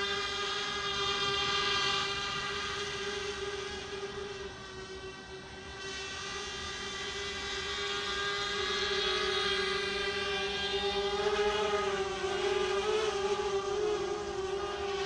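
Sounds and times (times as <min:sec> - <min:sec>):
drone buzzing whine: 0:00.0 - 0:15.0.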